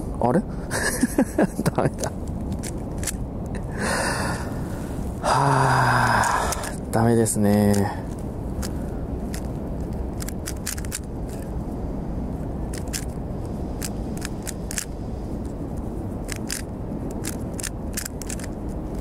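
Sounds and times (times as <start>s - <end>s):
low rumble: 0.0s - 19.0s
puzzle cube clicking: 6.1s - 6.8s, 7.5s - 11.5s, 12.7s - 13.2s, 13.8s - 14.9s, 16.2s - 19.0s.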